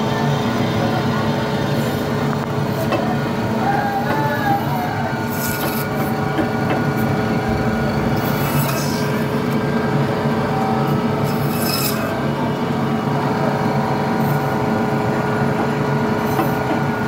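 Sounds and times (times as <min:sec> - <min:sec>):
band saw motor hum: 0:04.8 - 0:12.5.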